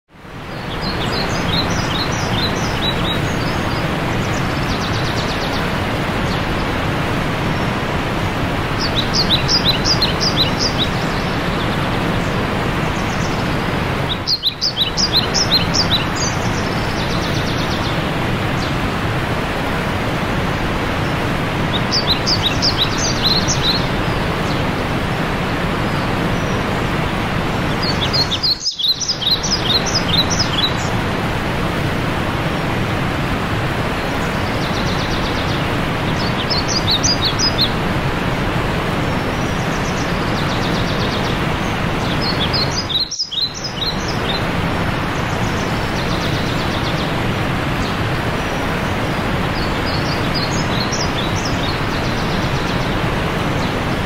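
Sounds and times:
waterfall rushing: 0.2 - 54.0
songbird chirping: 27.6 - 31.0, 39.2 - 54.0.

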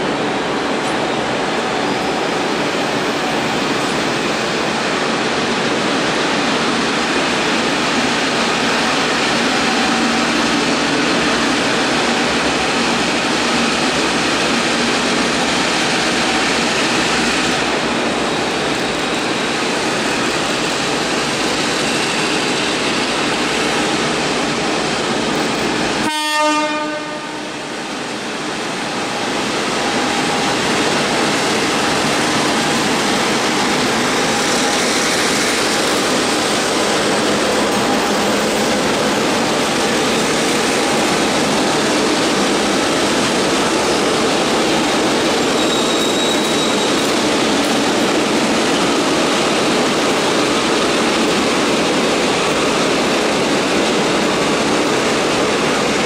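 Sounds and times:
diesel locomotives pulling train: 0.0 - 56.0
train horn toot: 26.0 - 27.6.

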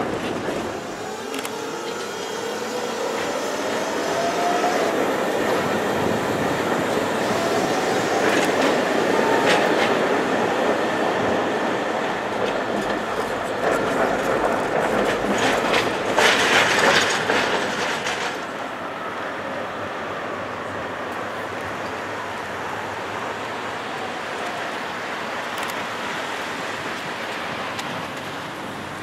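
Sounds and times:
wheels clacking over rail joints: 0.0 - 18.8
tram rolling noise: 0.0 - 29.0.

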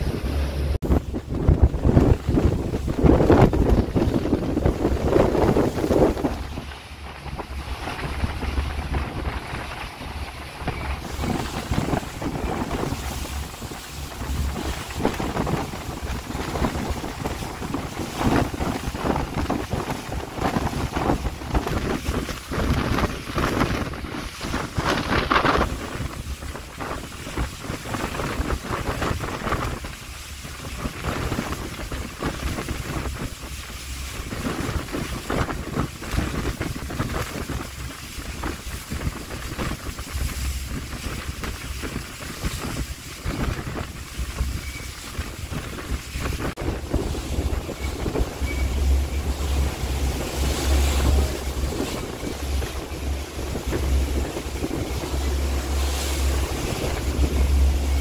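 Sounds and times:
gusty wind buffeting microphone: 0.0 - 58.0
low rumble: 35.7 - 58.0.

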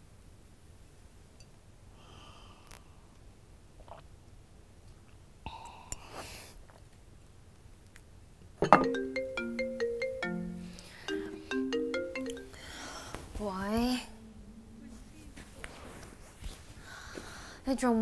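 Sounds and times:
mobile phone marimba ringtone: 8.7 - 12.7.

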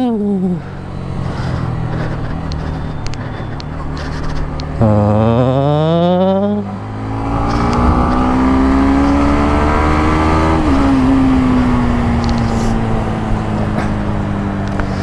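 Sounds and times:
motorcycle engine accelerating: 0.0 - 15.0
wind noise: 7.0 - 15.0.

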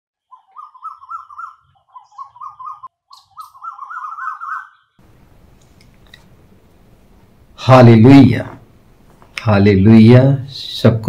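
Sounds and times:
bird singing: 0.2 - 5.0.

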